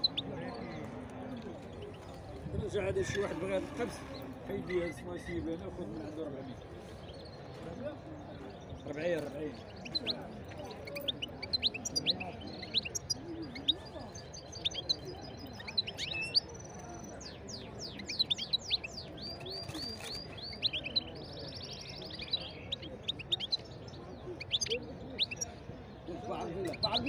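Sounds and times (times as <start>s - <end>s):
goldfinch singing: 9.5s - 25.6s.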